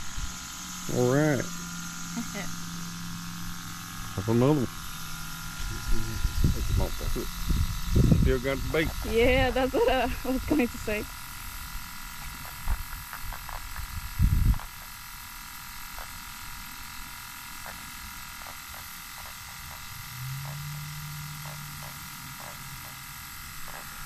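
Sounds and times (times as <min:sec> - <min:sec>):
low held tone: 0:00.0 - 0:11.0, 0:19.9 - 0:24.0
steady buzzing drone: 0:00.0 - 0:24.0.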